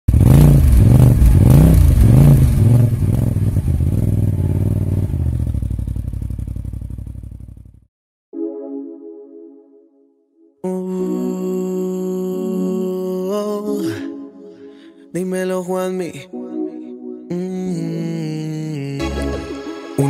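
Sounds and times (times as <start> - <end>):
utv engine revving and idling: 0.1 - 7.7
held musical chord: 8.3 - 15.2, 16.2 - 18.4.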